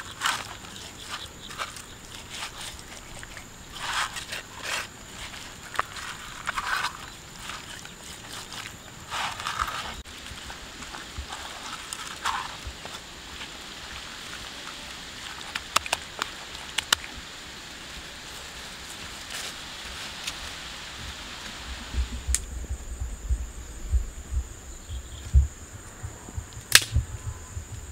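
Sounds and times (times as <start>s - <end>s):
sharp clicks: 26.5s - 27.0s.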